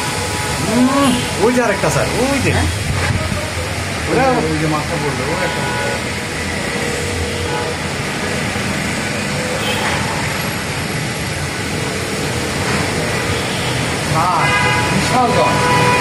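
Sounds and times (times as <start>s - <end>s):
heavy storm wind blowing: 0.0s - 5.3s
faint traffic: 0.0s - 16.0s.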